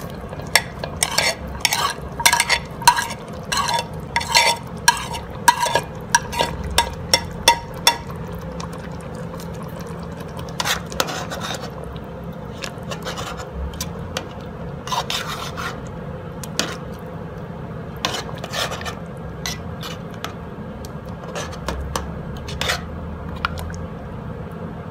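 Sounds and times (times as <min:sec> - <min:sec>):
spoon scraping and knocking pot: 0:00.0 - 0:08.1, 0:10.5 - 0:11.7, 0:21.2 - 0:22.9.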